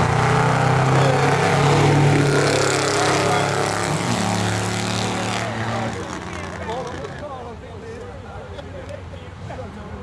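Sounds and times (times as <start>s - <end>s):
truck engines at full throttle: 0.0s - 7.6s.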